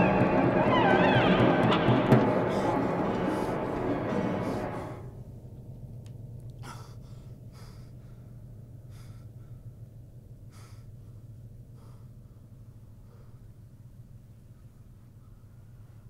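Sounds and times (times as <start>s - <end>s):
low hum: 0.0s - 16.0s
man gasping for breath: 6.6s - 9.8s, 10.4s - 13.6s.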